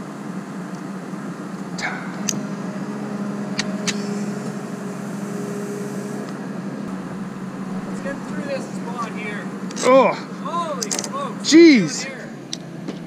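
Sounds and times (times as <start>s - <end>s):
excavator engine running: 0.0s - 13.0s
high steady whine: 0.0s - 13.0s
sharp clicks: 10.8s - 11.2s.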